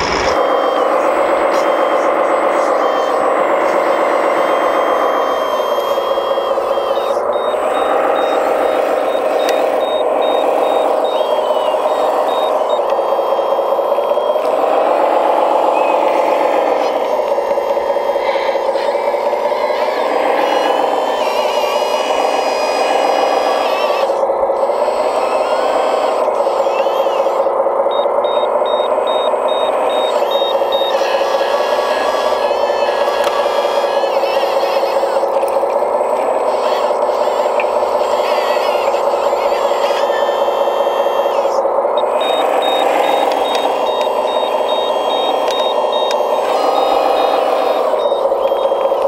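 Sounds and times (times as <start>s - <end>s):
high reversing beeps: 0.0s - 35.3s, 36.4s - 49.0s
electric pump whine: 0.0s - 49.0s
toy machine engine drone: 0.0s - 49.0s
short high warning beeps: 42.0s - 49.0s.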